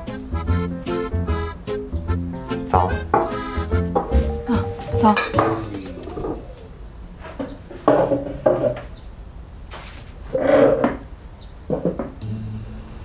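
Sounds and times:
bowls and chopsticks on wooden table: 4.0s - 6.4s.

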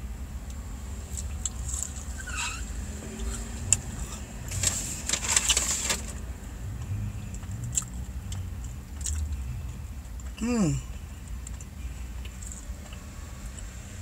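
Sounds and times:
low steady rumble: 0.0s - 14.0s
chewing fries: 6.8s - 10.4s.

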